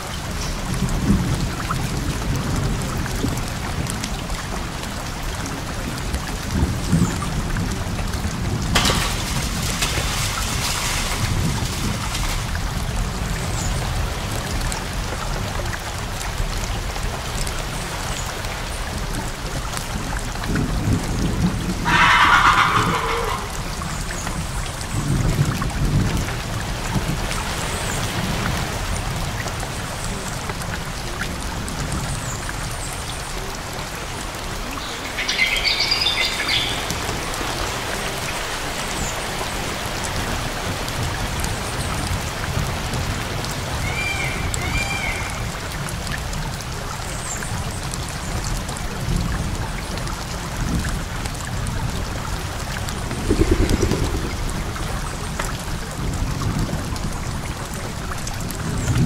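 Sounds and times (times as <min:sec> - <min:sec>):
rain falling: 0:00.0 - 0:59.0
thunder rumbling: 0:05.7 - 0:14.1, 0:20.4 - 0:27.2, 0:50.6 - 0:59.0
hissing noise: 0:53.0 - 0:55.4.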